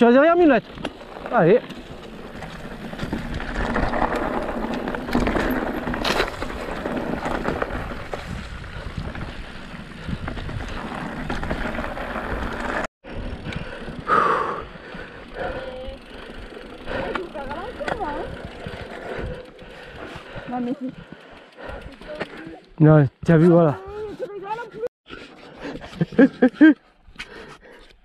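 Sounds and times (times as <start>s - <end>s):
bike tyres on loose dirt: 0.0s - 24.8s
bike rattling: 0.0s - 26.7s
wind buffeting microphone: 2.7s - 14.1s, 14.7s - 22.4s.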